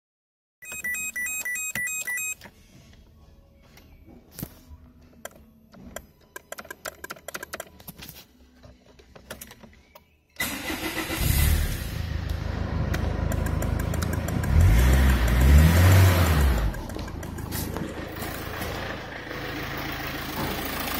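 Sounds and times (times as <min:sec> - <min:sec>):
ignition clicks and ticks: 0:05.1 - 0:07.9, 0:12.2 - 0:17.9
diesel engine cranking and running: 0:10.4 - 0:20.9.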